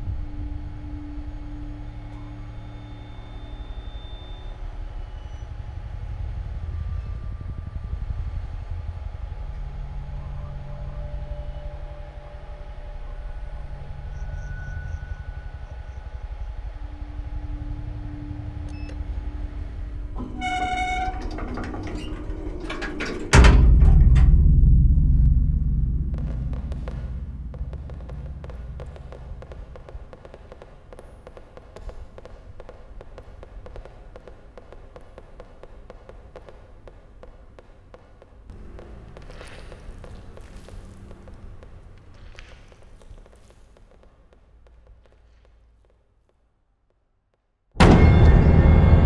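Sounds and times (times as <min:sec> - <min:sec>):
low rumbling drone: 0:00.0 - 0:36.8
eerie tones: 0:09.6 - 0:44.0
loud low boom: 0:23.3 - 0:34.1, 0:47.8 - 0:49.0
sharp hits: 0:47.8 - 0:49.0.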